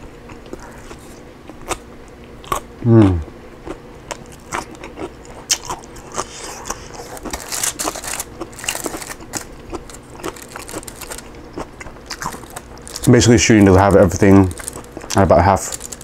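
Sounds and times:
chewing and mouth clicks: 0:03.6 - 0:13.0, 0:14.5 - 0:15.2
aluminium foil crinkling: 0:06.7 - 0:11.4, 0:12.0 - 0:16.0.

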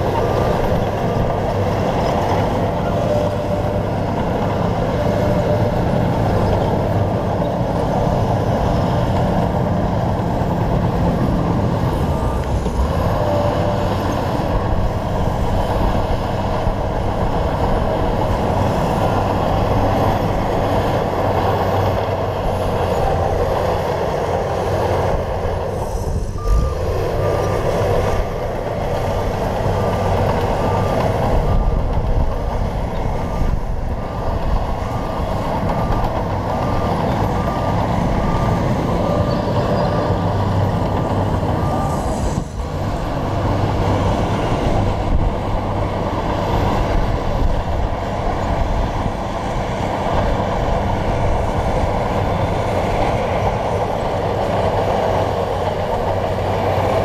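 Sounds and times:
bulldozer diesel engine running: 0:00.0 - 0:57.0
high beep: 0:26.3 - 0:27.4.

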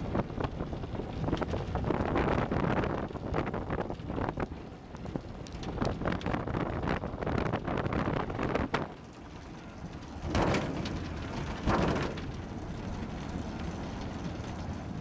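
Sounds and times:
wind on microphone: 0:00.0 - 0:09.0.

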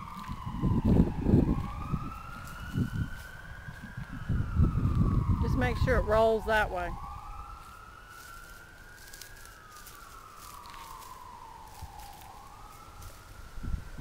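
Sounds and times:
distant siren wailing: 0:00.0 - 0:14.0.

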